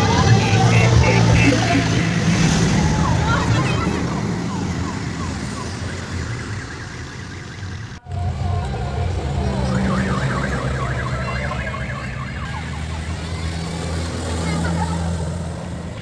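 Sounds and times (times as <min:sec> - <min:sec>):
vehicle engines driving past: 0:00.0 - 0:16.0
warbling electronic horn: 0:08.0 - 0:13.1.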